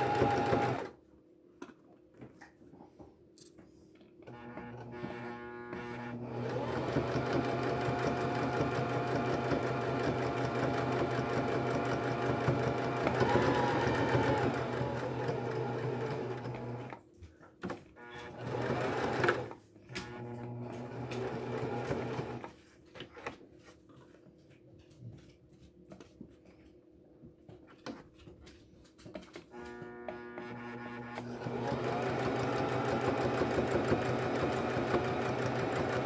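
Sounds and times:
sewing machine stitching: 0.0s - 1.0s, 4.3s - 17.0s, 18.0s - 22.5s, 29.5s - 36.0s.

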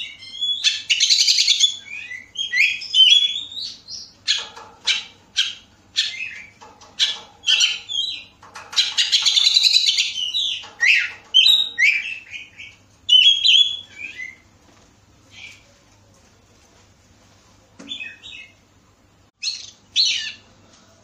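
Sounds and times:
bird singing whistled phrases: 0.0s - 3.8s, 13.1s - 14.4s
harsh bird rattle: 4.2s - 15.7s.

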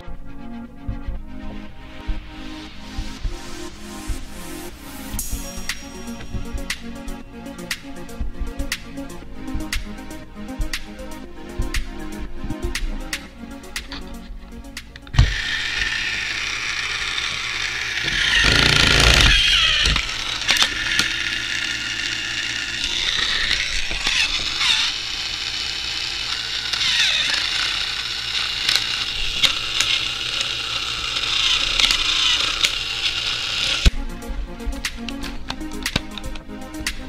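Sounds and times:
toy motor gears whirring and clicking: 15.0s - 33.9s.

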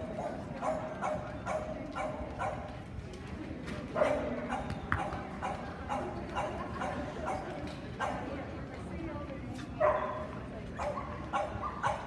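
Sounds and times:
dog barking: 0.2s - 2.6s, 9.8s - 10.2s, 10.8s - 12.0s.

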